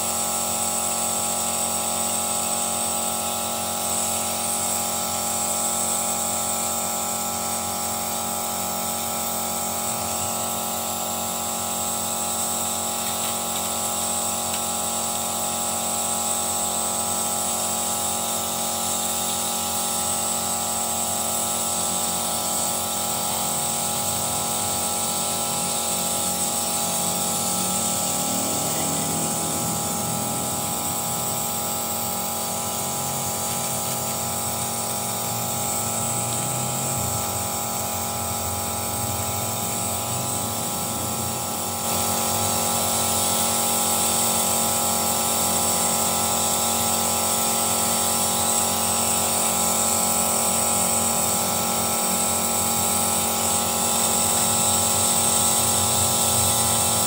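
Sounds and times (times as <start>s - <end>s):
high-pitched whine: 25.4s - 42.8s
car engine running: 26.8s - 36.4s.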